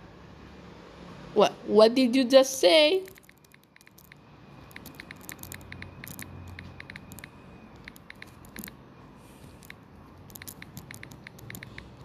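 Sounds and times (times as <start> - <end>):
typing taps on smartphone screen: 3.1 - 8.8, 9.6 - 12.0.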